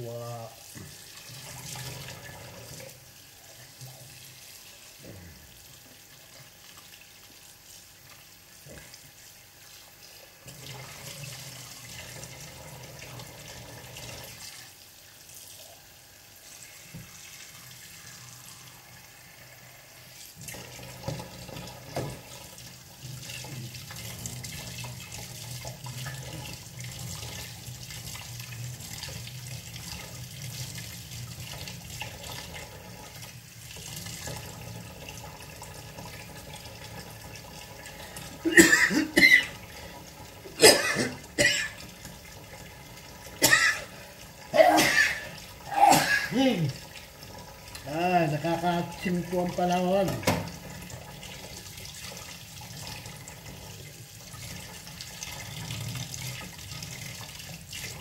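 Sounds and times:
tap running into sink: 20.4 - 22.4, 50.0 - 50.8.

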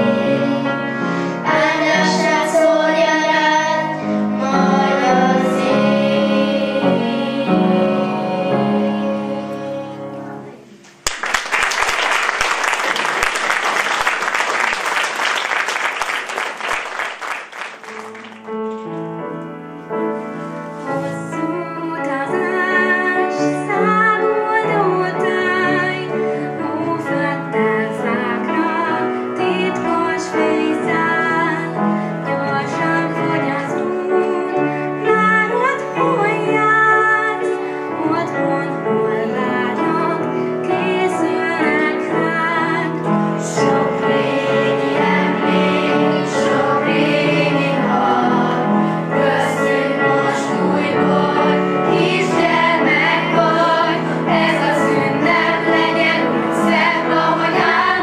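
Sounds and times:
children singing: 0.0 - 10.6, 36.2 - 58.0
piano accompaniment: 0.0 - 58.0
audience applauding: 10.9 - 18.9.

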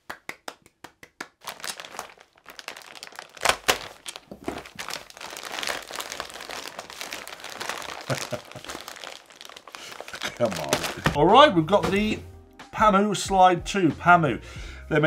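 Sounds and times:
hand claps: 0.0 - 1.4
plastic bag crinkling and tearing: 1.4 - 11.2.

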